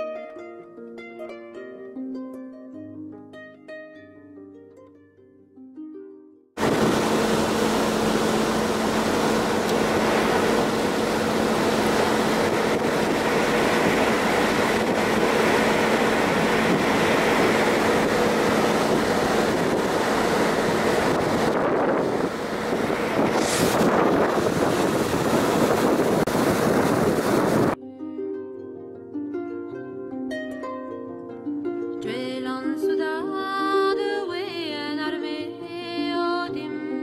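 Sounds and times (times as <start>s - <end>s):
boat engine hum: 6.6s - 27.8s
churning wake rushing: 6.6s - 27.8s
wind buffeting microphone: 6.6s - 27.8s.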